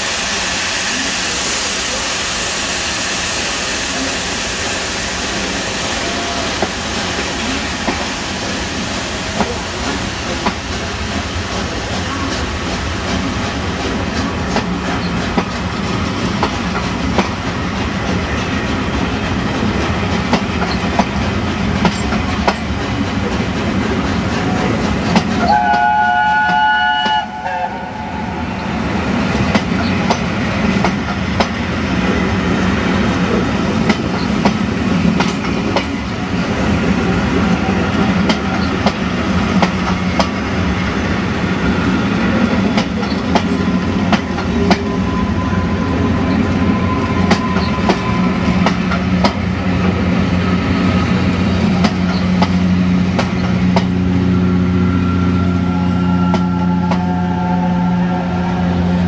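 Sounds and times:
train wheels clicking over rail joints: 5.3s - 27.2s, 28.6s - 45.0s, 46.2s - 54.3s
train whistle: 5.9s - 6.7s, 25.4s - 28.5s, 54.7s - 59.0s.

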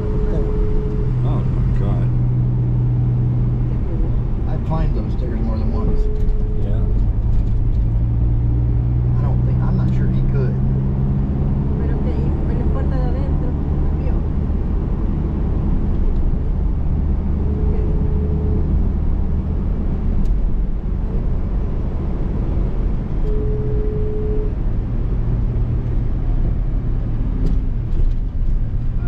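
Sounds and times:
short steady tone: 0.0s - 2.1s, 5.5s - 7.0s, 23.2s - 24.6s
engine and road rumble: 0.0s - 29.0s.

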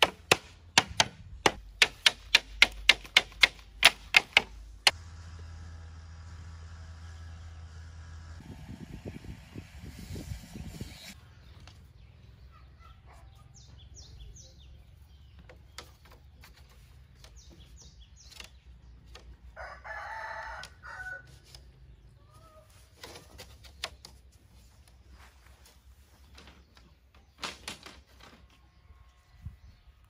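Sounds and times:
small birds chirping: 10.6s - 19.6s
rooster crowing: 19.6s - 21.3s.

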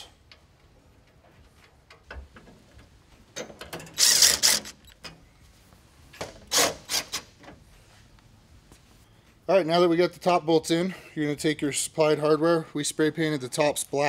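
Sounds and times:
cordless drill driving bolts: 3.8s - 4.8s.

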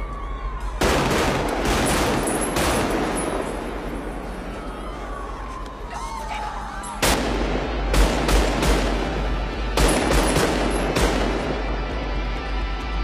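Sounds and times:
gunshots with echo: 0.8s - 4.5s, 7.0s - 11.9s.

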